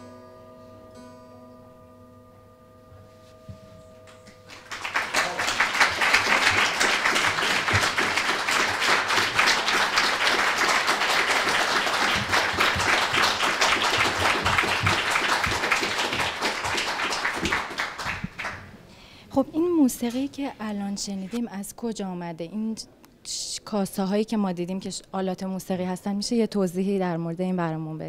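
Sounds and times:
audience applause: 0:04.5 - 0:18.7.

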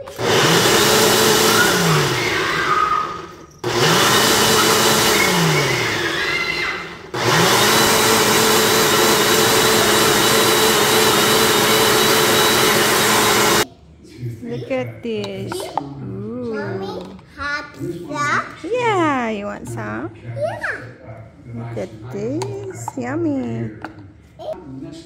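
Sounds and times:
blender motor running: 0:00.0 - 0:13.6.

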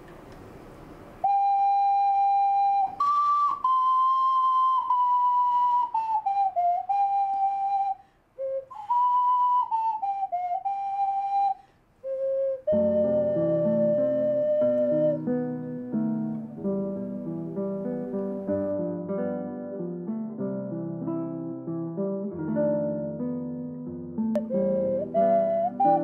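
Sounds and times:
ocarina slow melody: 0:01.2 - 0:26.0
acoustic guitar: 0:12.7 - 0:26.0.

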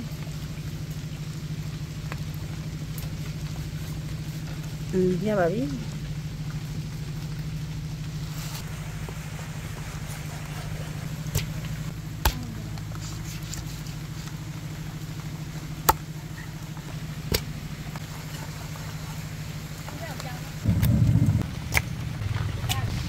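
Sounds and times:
low motor-like hum: 0:00.0 - 0:23.0.

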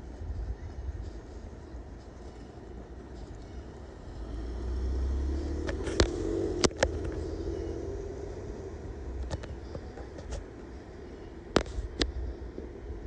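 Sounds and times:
car engine running: 0:03.2 - 0:11.6.

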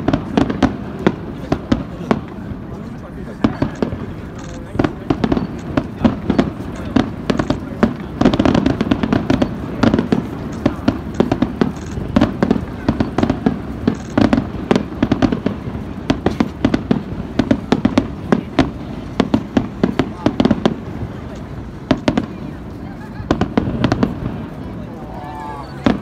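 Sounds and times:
firework shells bursting: 0:03.4 - 0:22.4.

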